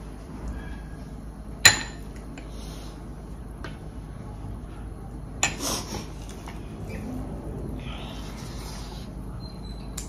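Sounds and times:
tableware clinking: 1.7s - 2.0s.

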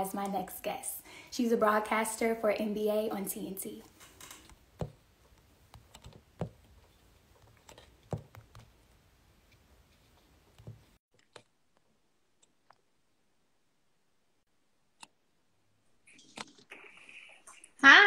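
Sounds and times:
faint clicks and taps: 3.8s - 12.8s.

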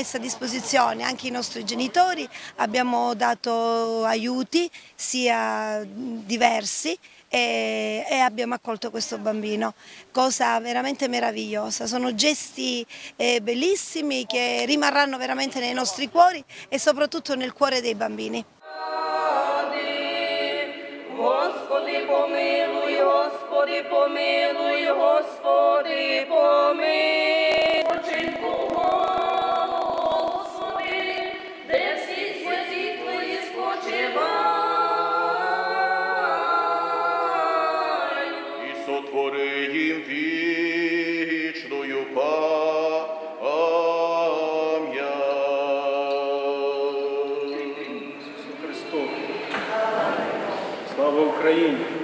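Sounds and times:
congregation singing a hymn: 0.0s - 2.6s, 18.6s - 52.0s
crackling noise: 27.3s - 32.0s.

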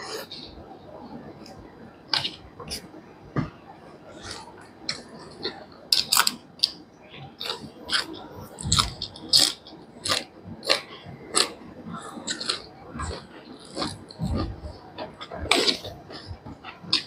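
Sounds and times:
person chewing food: 4.1s - 17.0s.

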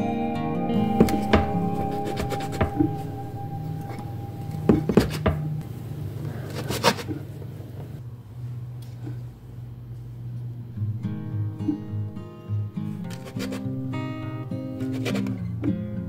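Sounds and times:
soft guitar music: 0.0s - 5.6s, 10.8s - 16.0s.

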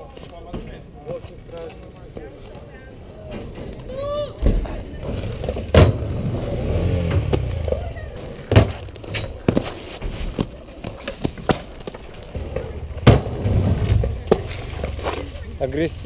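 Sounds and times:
skates rolling on asphalt: 0.0s - 16.0s
inline skates grinding on wood: 4.6s - 16.0s
skates clacking on landing: 7.1s - 15.4s.

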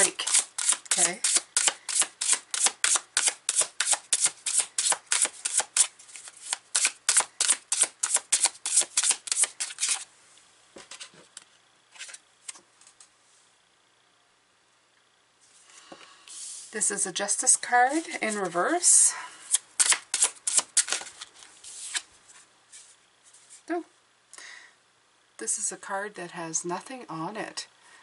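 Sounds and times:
cards being shuffled: 0.0s - 10.1s, 19.5s - 23.6s.

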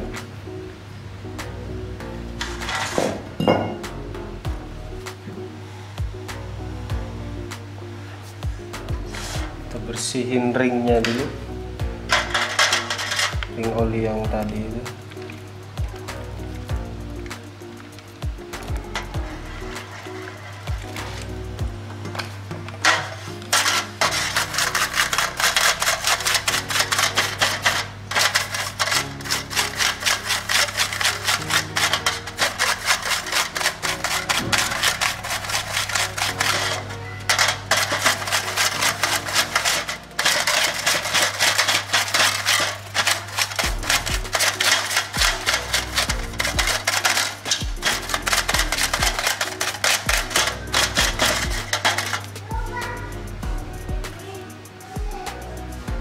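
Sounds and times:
background music with bass: 0.0s - 56.0s
brush scrubbing in metal tin: 2.4s - 3.1s, 9.1s - 11.4s, 12.1s - 15.4s, 18.5s - 21.5s, 22.8s - 53.1s.

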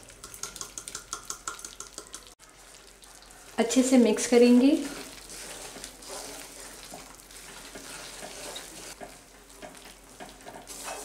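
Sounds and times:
faint sizzle: 1.5s - 11.0s
wooden spatula scraping a pan: 4.6s - 11.0s.

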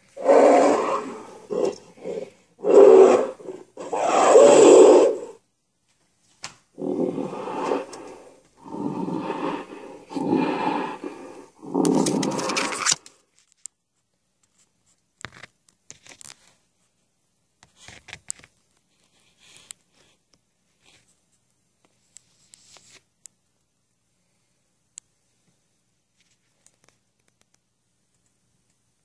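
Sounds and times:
recorded monster roars: 0.1s - 5.4s, 6.8s - 13.0s
faint clicks and scrapes: 11.8s - 17.0s, 17.6s - 23.4s, 25.4s - 28.8s.

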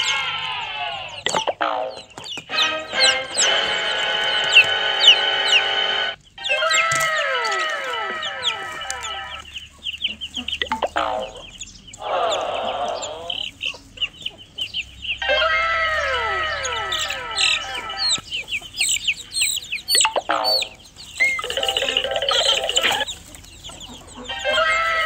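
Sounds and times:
chickens clucking: 0.0s - 25.0s
chicks peeping: 0.0s - 25.0s
long falling tones: 2.5s - 9.4s, 15.2s - 18.2s.

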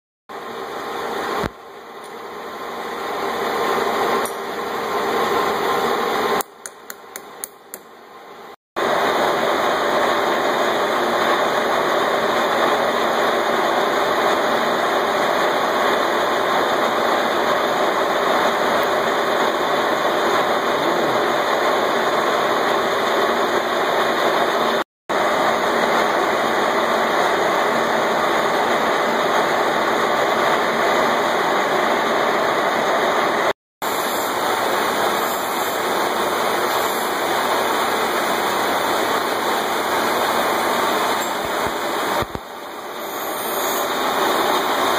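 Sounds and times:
metal lathe running: 33.8s - 44.9s.

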